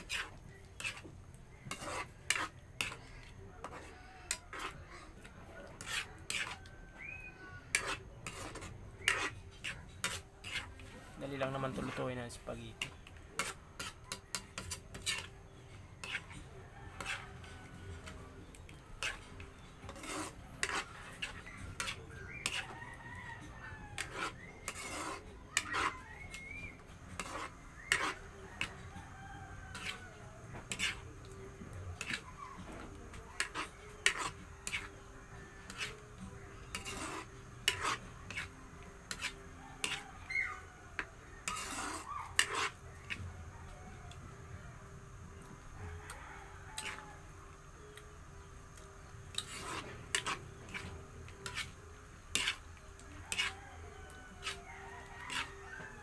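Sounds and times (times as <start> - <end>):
ladle scraping frying pan: 0.0 - 4.8, 5.7 - 12.1, 12.8 - 15.4, 16.0 - 22.8, 23.9 - 28.7, 29.6 - 31.0, 32.0 - 36.0, 36.6 - 38.5, 39.1 - 40.2, 41.0 - 43.2, 49.3 - 52.7, 53.3 - 53.6, 54.4 - 55.8.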